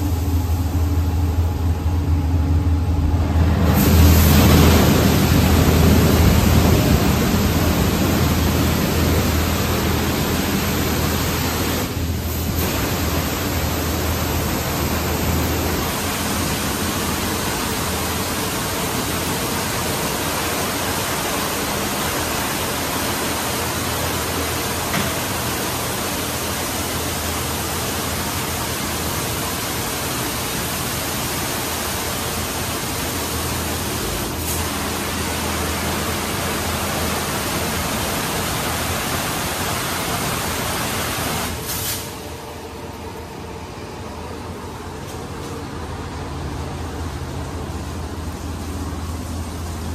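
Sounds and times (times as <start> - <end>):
low hum: 0.0 - 18.9
high-pressure water spraying: 3.8 - 42.0.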